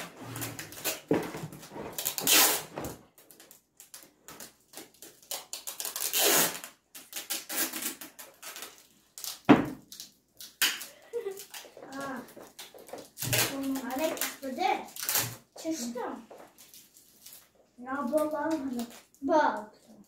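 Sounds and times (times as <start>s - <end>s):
packing tape ripping off roll: 0.0s - 15.9s
thump: 9.5s - 9.8s.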